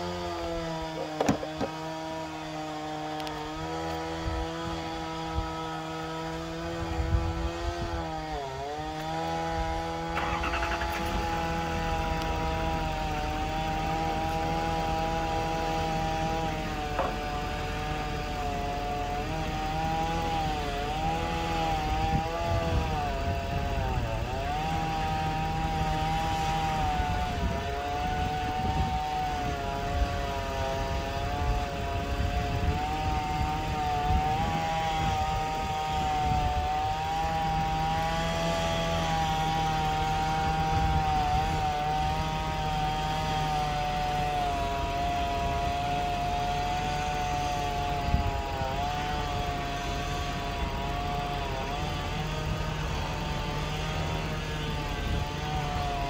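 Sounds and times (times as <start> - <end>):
chainsaw cutting tree trunk: 0.0 - 56.0.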